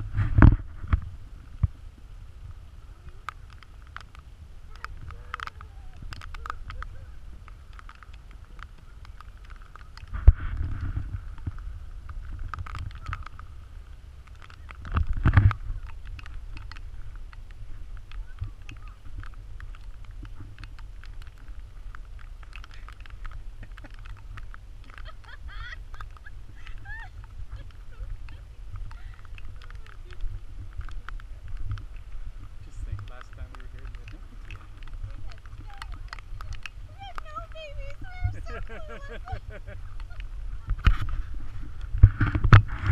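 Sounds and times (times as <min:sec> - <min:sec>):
wind rumbling on microphone: 0:00.0 - 0:42.9.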